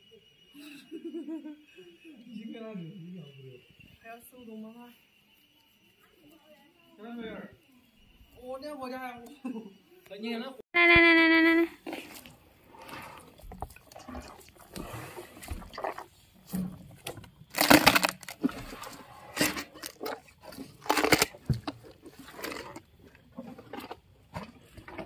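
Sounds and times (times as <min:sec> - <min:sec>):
hippopotamus chewing and crunching: 0:11.8 - 0:25.0.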